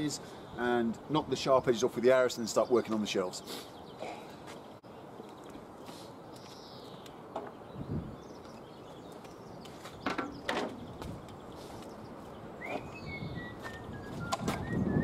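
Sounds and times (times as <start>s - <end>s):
outdoor background noise: 0.0s - 15.0s
tools and timber knocking: 7.3s - 7.6s, 10.0s - 11.1s
bird whistles: 12.6s - 15.0s.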